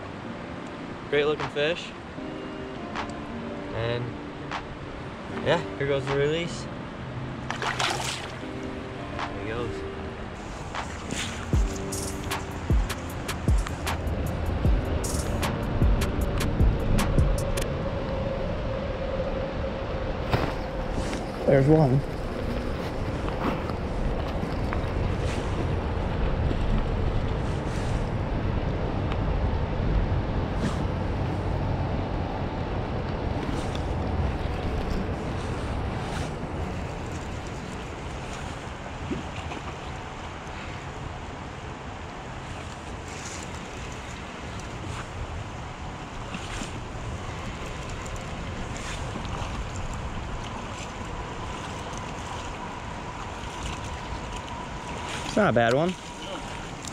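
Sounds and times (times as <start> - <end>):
creek water flowing: 0.0 - 56.9
wind rumble on microphone: 10.3 - 56.9
creek water running over riffles: 33.4 - 56.9.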